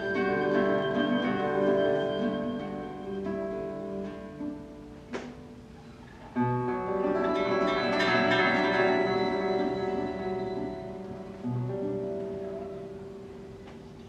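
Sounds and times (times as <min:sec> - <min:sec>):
classical guitar: 0:00.0 - 0:14.0
violin: 0:06.4 - 0:13.9.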